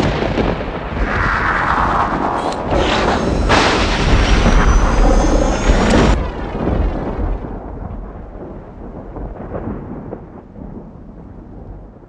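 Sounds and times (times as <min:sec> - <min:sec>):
deep booms and rumble: 0:00.0 - 0:12.0
whoosh: 0:01.0 - 0:08.8
sudden loud hit: 0:02.6 - 0:09.2.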